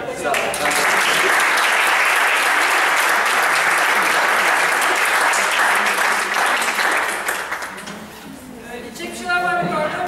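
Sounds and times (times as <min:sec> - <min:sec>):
audience applauding: 0:00.2 - 0:07.9.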